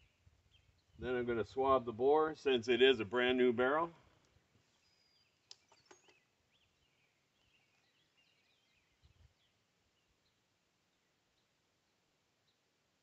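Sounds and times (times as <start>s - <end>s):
distant bird chirps: 0.0s - 1.2s, 4.0s - 12.8s.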